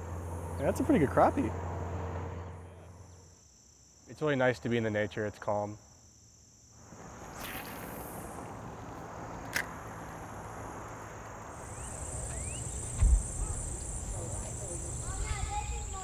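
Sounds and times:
insects trilling: 0:00.0 - 0:16.0
low thump: 0:12.8 - 0:13.5.

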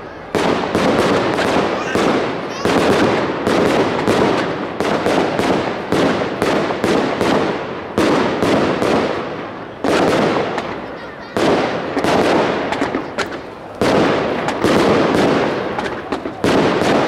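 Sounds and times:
fireworks banging: 0:00.0 - 0:17.0.

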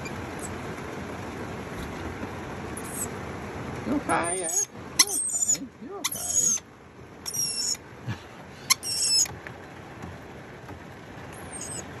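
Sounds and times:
lorikeet screeching: 0:04.2 - 0:06.6, 0:07.2 - 0:07.8, 0:08.7 - 0:09.3, 0:11.4 - 0:11.9.

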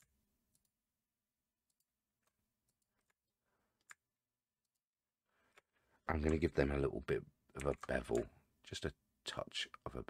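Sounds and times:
computer mouse clicks: 0:03.8 - 0:06.5, 0:07.6 - 0:08.3.

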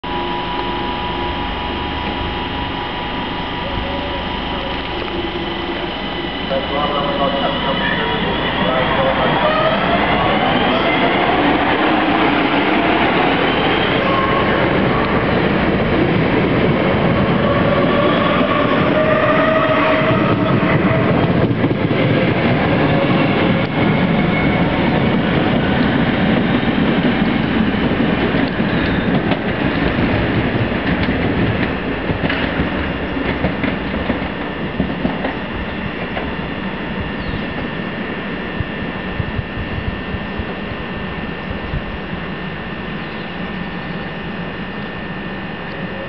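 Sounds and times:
electric train traction whine: 0:00.0 - 0:46.0
train wheels clicking over rail joints: 0:24.9 - 0:36.4.

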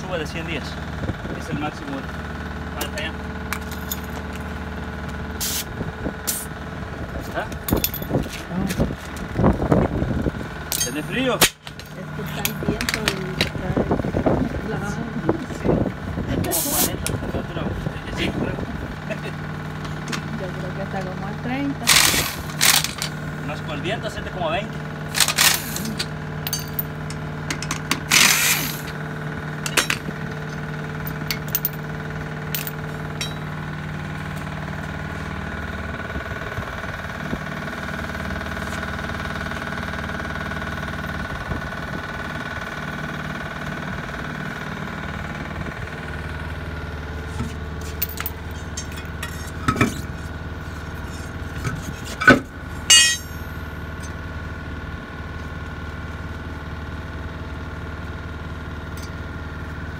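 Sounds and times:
engine running: 0:00.0 - 0:59.9
metal clinks and clanks: 0:03.5 - 0:04.3, 0:07.6 - 0:08.4, 0:10.7 - 0:13.5, 0:21.8 - 0:23.2, 0:25.1 - 0:29.0, 0:29.6 - 0:31.9, 0:32.5 - 0:33.6, 0:47.4 - 0:50.3, 0:51.0 - 0:54.2
impact wrench rattling: 0:21.8 - 0:23.2, 0:25.1 - 0:29.0, 0:29.6 - 0:31.8, 0:32.5 - 0:33.5, 0:47.3 - 0:50.3, 0:51.0 - 0:54.1
loud ringing metal clanks: 0:25.2 - 0:28.4, 0:32.5 - 0:33.6, 0:48.0 - 0:50.1, 0:51.8 - 0:54.2.

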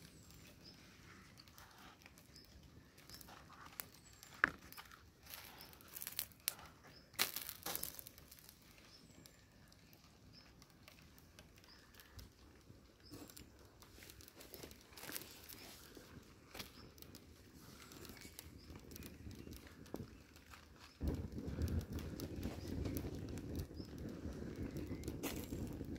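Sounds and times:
shoes rustling on gritty dirt: 0:03.0 - 0:08.7, 0:25.1 - 0:25.8.

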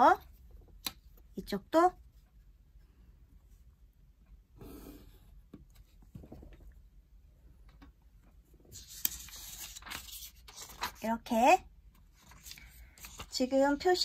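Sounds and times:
paper rustling: 0:08.7 - 0:11.0, 0:12.1 - 0:13.4.

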